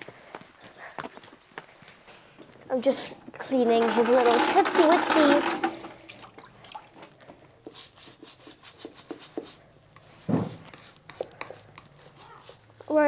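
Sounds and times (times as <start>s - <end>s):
brush scrubbing wet hoof: 3.7s - 5.8s, 7.6s - 13.0s.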